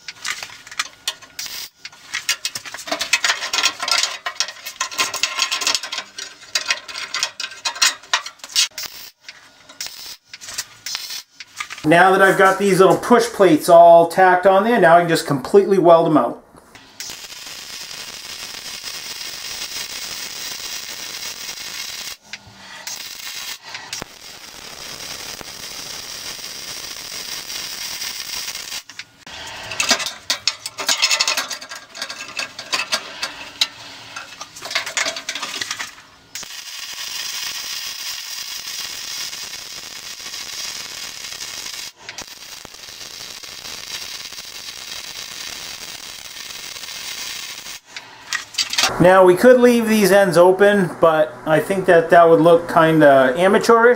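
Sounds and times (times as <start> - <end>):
welding arc crackling: 0.0 - 13.4, 16.7 - 49.9
metal clamp knocking and scraping: 29.7 - 35.9.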